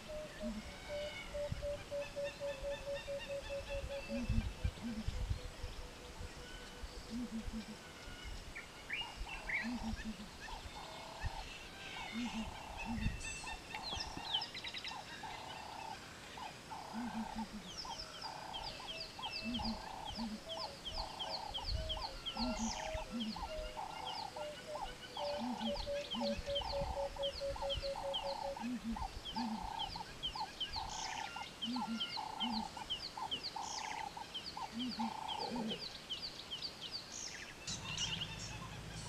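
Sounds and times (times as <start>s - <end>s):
bird low double hoot: 0.0s - 5.2s, 12.0s - 13.1s, 16.7s - 29.9s, 34.7s - 35.9s.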